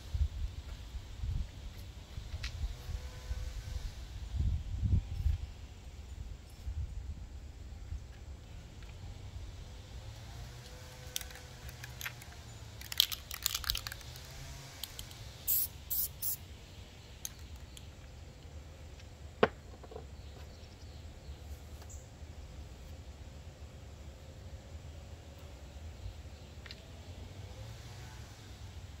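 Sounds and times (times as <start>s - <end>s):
clicks and rattles: 11.1s - 15.1s
spray can hissing: 14.9s - 16.4s.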